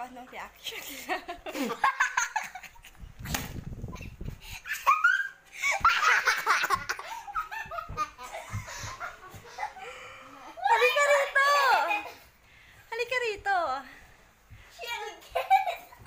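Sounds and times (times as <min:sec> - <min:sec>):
woman laughing hard: 0:04.0 - 0:10.0.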